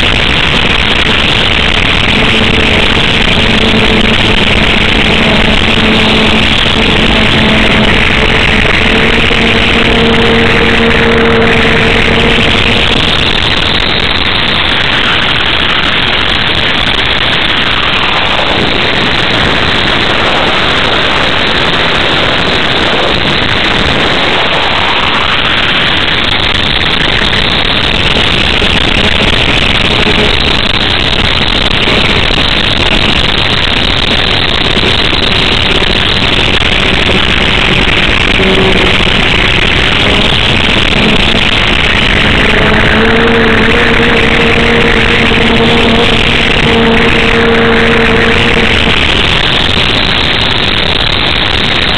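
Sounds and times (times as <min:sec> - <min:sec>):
electric motor and propeller buzz: 0:00.0 - 0:51.9
rushing airflow: 0:00.0 - 0:51.9.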